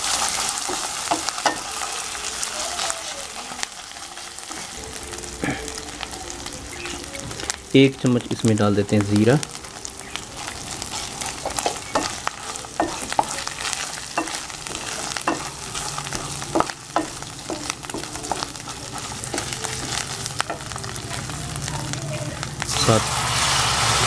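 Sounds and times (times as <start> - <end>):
food sizzling in hot oil: 0.0 - 24.0
wooden spatula scraping pan: 10.4 - 21.3.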